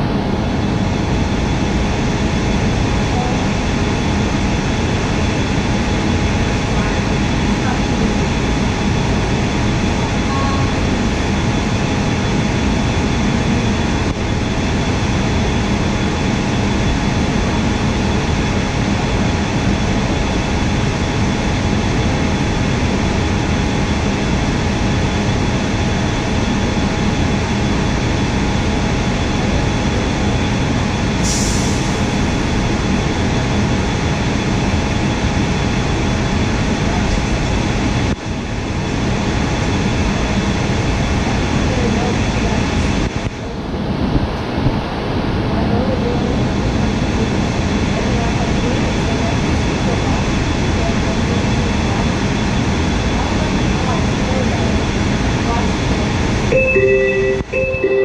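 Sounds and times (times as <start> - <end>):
train car hum and rush: 0.0 - 58.0
faint steady tones: 56.5 - 58.0.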